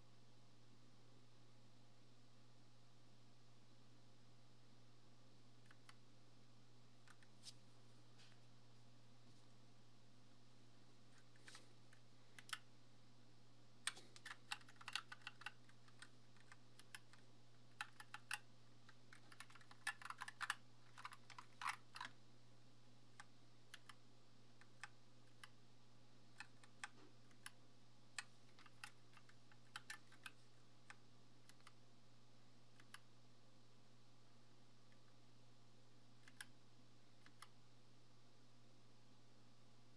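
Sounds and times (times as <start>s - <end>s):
faint low hum: 0.0s - 39.9s
mechanical keyboard clacking: 13.9s - 18.4s, 19.1s - 22.1s, 28.5s - 30.4s.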